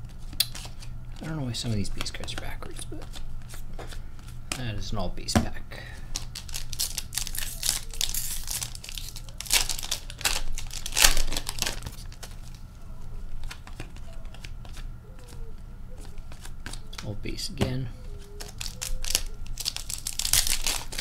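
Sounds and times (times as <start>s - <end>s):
cards being handled: 0.0s - 4.7s, 6.0s - 21.0s
wrapper tearing and crinkling: 6.1s - 12.7s, 18.4s - 21.0s.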